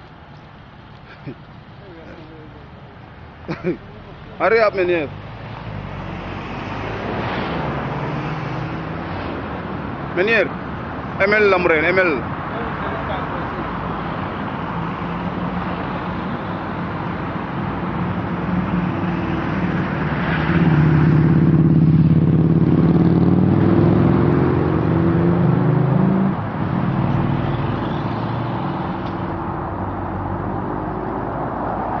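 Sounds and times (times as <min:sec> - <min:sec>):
street traffic: 0:00.0 - 0:32.0.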